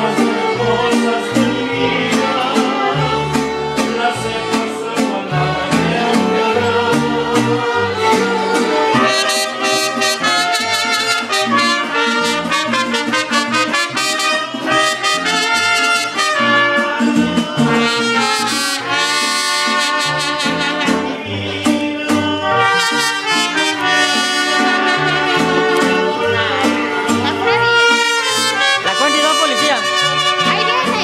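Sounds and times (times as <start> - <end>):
mariachi band playing: 0.0 - 31.0
trumpets playing melody: 7.6 - 21.4, 22.3 - 31.0.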